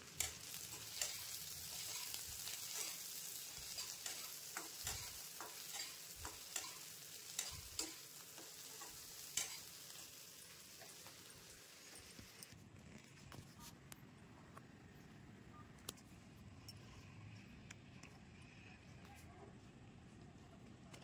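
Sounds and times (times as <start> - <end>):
onion sizzling in wok: 0.0 - 12.5
spatula scraping pan: 0.2 - 9.8.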